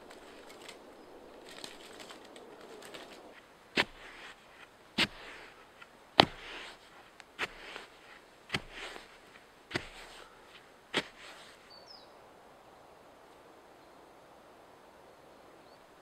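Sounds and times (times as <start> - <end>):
crumbling rustle of soil: 0.0 - 11.7
stick thudding into earth: 3.8 - 6.8, 7.4 - 10.2, 10.9 - 11.5.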